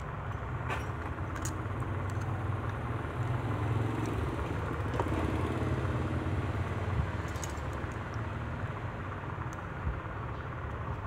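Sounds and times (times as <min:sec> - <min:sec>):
low mechanical hum: 0:00.0 - 0:11.0
small objects clicking: 0:01.0 - 0:02.8, 0:07.2 - 0:08.2.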